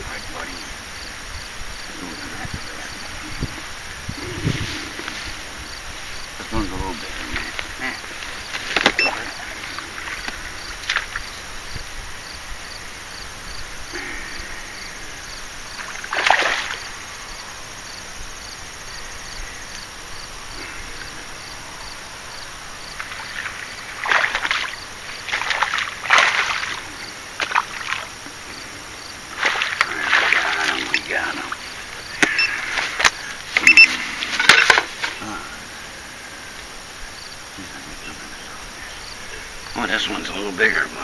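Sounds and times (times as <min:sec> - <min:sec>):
fish thrashing splashes: 0:15.8 - 0:17.0, 0:23.0 - 0:28.1, 0:29.3 - 0:31.6.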